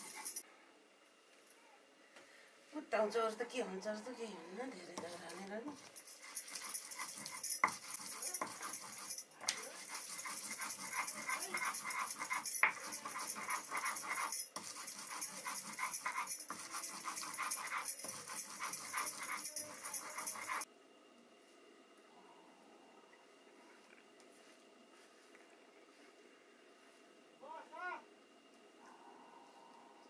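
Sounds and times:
stone scraping on grinding slab: 6.0s - 20.7s.

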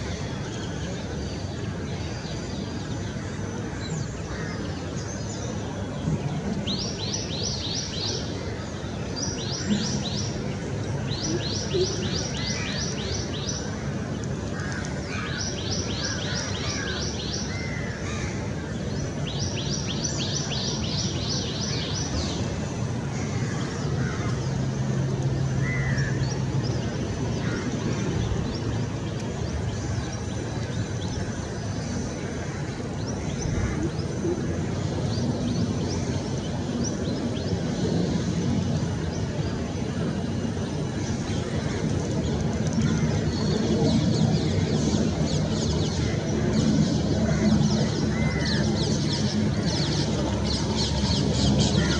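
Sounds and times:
birds calling: 2.7s - 51.9s.

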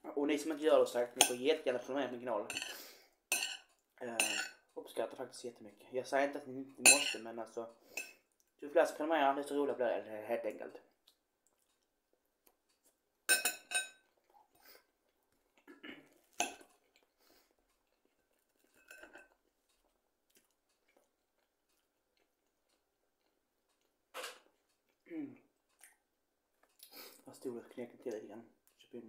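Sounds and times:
metal fork clinking on plate: 2.5s - 4.6s, 6.8s - 7.3s, 13.3s - 14.0s, 16.4s - 16.7s, 18.7s - 19.4s.

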